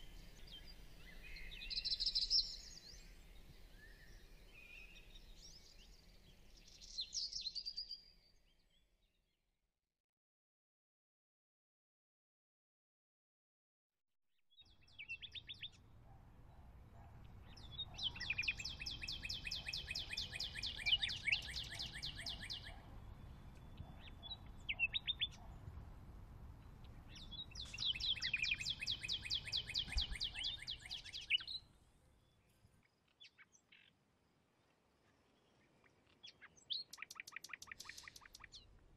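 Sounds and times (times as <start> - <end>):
bird chirps: 0.0 - 8.8, 14.6 - 15.8, 17.3 - 25.7, 26.6 - 33.9, 35.2 - 38.7
songbird trilling: 27.2 - 31.5.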